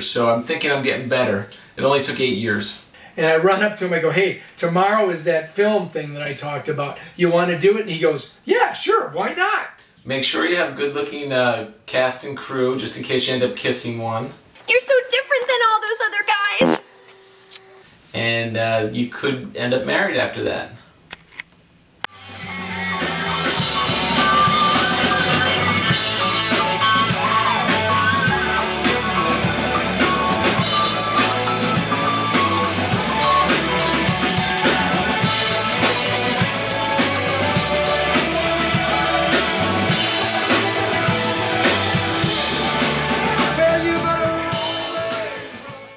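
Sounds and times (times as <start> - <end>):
electric guitars: 22.1 - 45.8
drum kit beat: 22.1 - 45.9.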